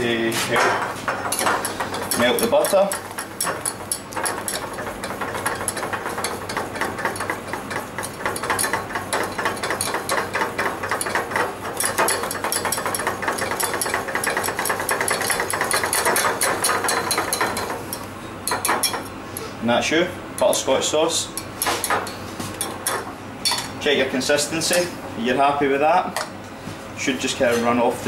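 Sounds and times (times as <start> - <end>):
whisk rattling in a saucepan: 1.3 - 19.0.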